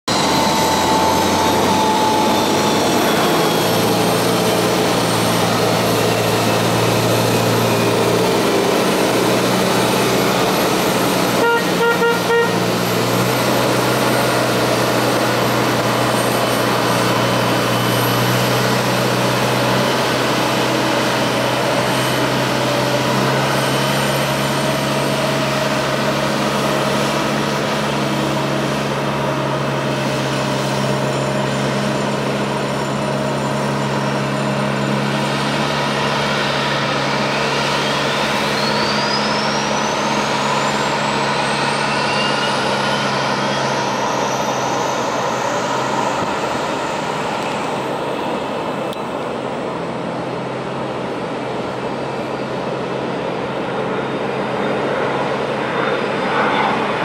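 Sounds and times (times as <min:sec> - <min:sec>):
jet engine whine: 0:00.0 - 0:57.0
tug engine: 0:00.0 - 0:57.0
horn toots: 0:11.2 - 0:12.9.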